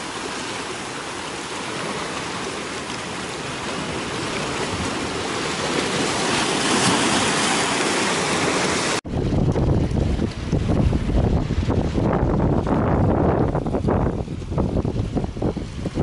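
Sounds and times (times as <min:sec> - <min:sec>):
sea water washing among rocks: 0:00.0 - 0:16.0
wind buffeting microphone: 0:09.0 - 0:16.0.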